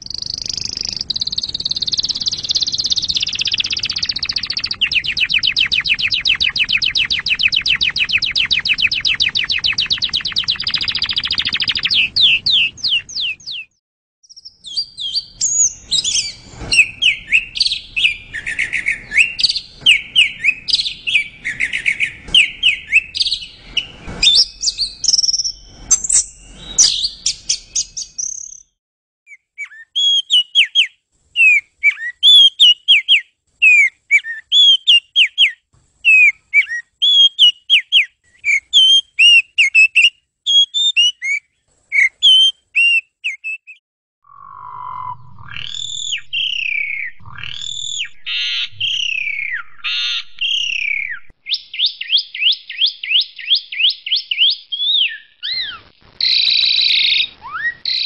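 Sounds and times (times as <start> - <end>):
bird whistled notes: 14.3 - 28.7, 29.3 - 58.0
thrush warbling song: 44.3 - 51.3.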